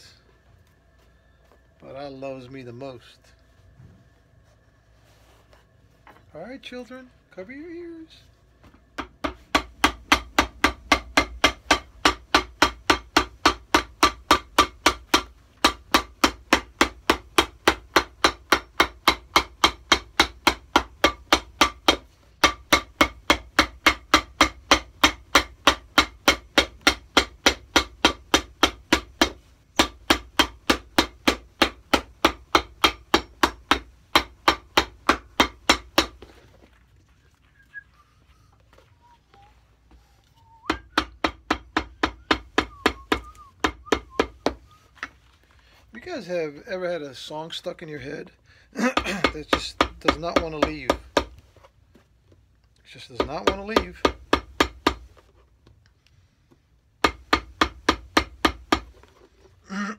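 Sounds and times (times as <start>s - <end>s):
hammer pounding on shoe: 8.6s - 36.7s, 40.7s - 45.2s, 48.8s - 51.4s, 53.1s - 55.2s, 57.0s - 59.1s.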